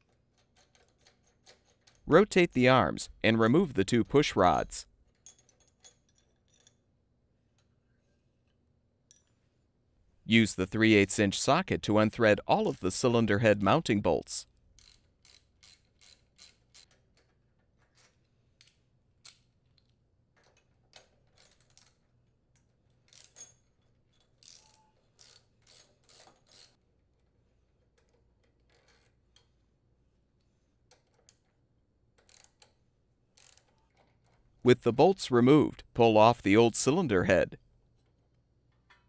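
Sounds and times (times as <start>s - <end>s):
ratchet wrench clicking: 14.8s - 17.0s, 24.4s - 26.8s, 32.2s - 32.8s, 33.4s - 34.1s.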